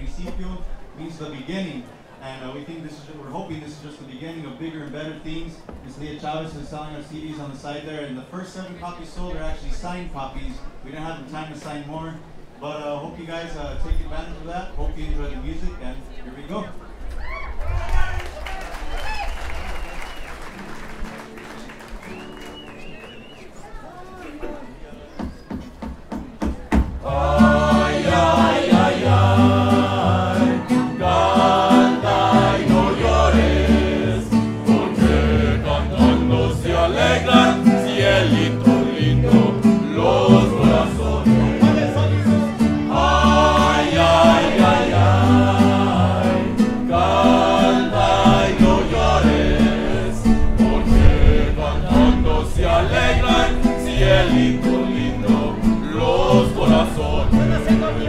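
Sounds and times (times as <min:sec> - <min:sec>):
band singing together: 0:27.0 - 0:58.0
bass guitar line: 0:27.0 - 0:58.0
guitars: 0:27.0 - 0:58.0.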